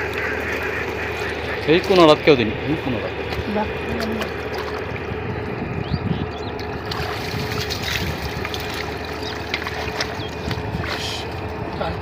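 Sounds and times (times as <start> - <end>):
water sloshing and splashing: 0.0 - 12.0
wind on microphone: 4.8 - 9.2, 9.8 - 12.0.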